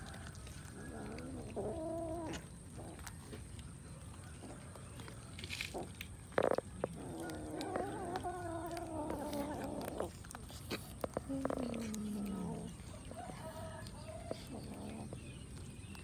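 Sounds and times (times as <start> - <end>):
cats chewing wetly: 0.0 - 16.0
cat growling: 0.7 - 3.1, 5.7 - 13.2, 14.0 - 15.4.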